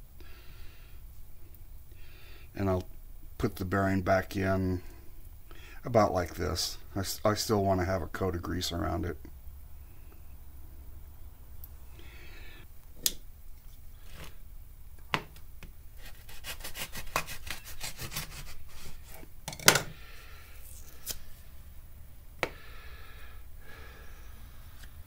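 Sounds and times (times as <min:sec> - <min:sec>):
paper tearing: 0:16.0 - 0:19.2.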